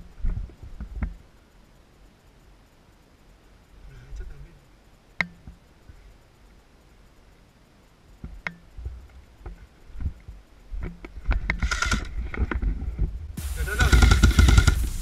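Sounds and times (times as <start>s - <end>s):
brush and branches crackling: 8.9s - 15.0s
footsteps through undergrowth: 13.4s - 15.0s.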